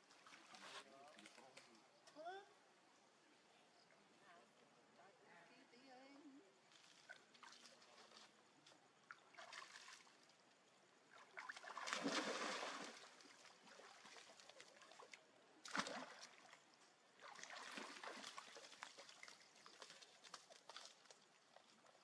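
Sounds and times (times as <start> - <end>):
pool water splashing: 11.0 - 22.0.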